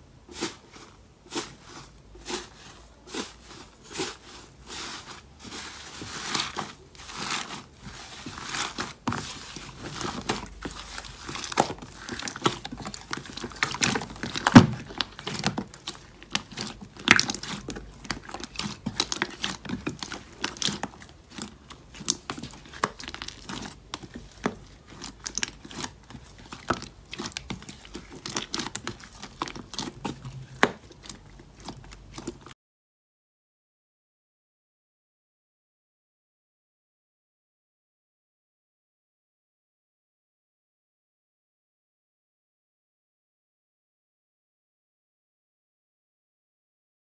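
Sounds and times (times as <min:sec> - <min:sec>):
slime squishing with sticky clicks: 0:08.6 - 0:32.5.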